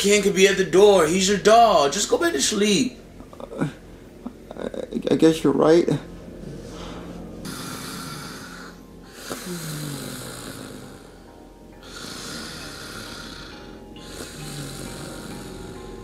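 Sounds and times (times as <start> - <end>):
person snoring: 6.4 - 16.0.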